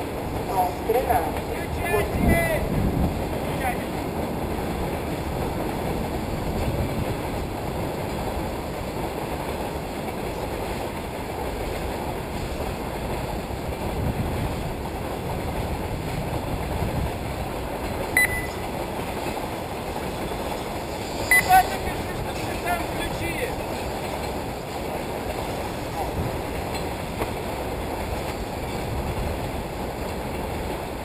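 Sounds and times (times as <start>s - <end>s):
wind buffeting microphone: 1.1s - 21.3s, 22.0s - 31.0s
high beep: 18.2s - 18.7s, 21.3s - 21.8s.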